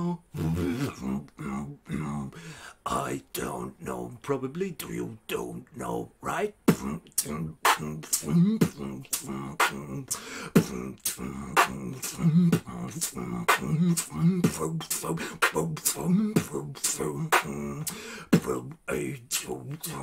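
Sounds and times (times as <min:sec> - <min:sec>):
beatboxing percussion: 0:06.6 - 0:20.0.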